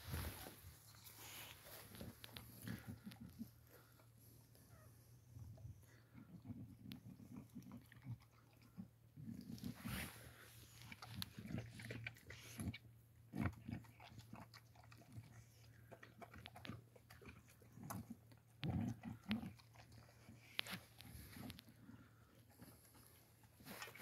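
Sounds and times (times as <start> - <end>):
dog chewing from metal bowl: 10.8 - 22.7.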